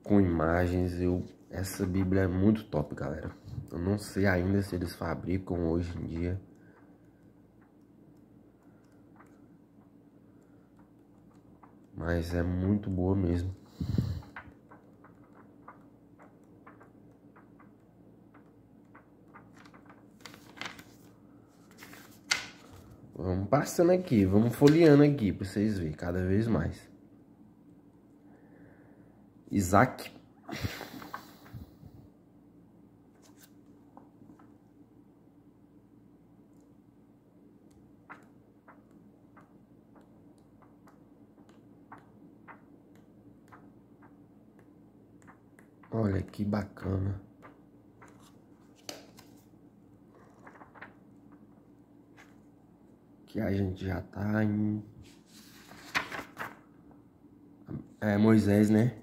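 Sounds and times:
low steady hum: 0:00.0 - 0:59.0
faint paper ticks: 0:06.0 - 0:13.0, 0:14.1 - 0:20.8, 0:50.1 - 0:51.0
faint regular ticking: 0:06.4 - 0:12.4
page turning rustle: 0:14.1 - 0:23.0, 0:24.0 - 0:25.0, 0:33.2 - 0:33.7, 0:38.0 - 0:44.2, 0:47.4 - 0:51.5, 0:52.1 - 0:52.5, 0:55.0 - 0:56.8.

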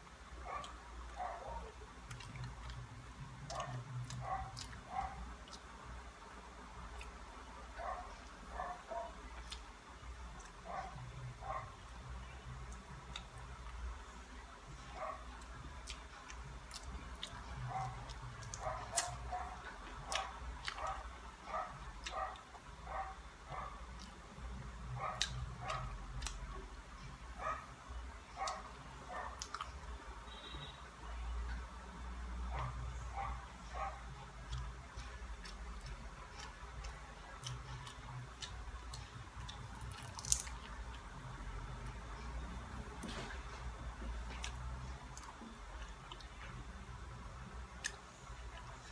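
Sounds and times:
soft squishy chewing: 0:00.5 - 0:05.9, 0:06.8 - 0:11.2, 0:15.3 - 0:26.6, 0:33.7 - 0:46.7
crisp fried fish crackling when torn: 0:39.8 - 0:40.6.

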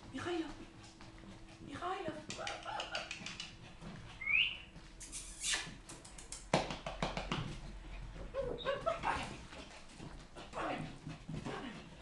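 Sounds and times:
puppy whimpering: 0:04.2 - 0:05.7, 0:08.3 - 0:09.0.

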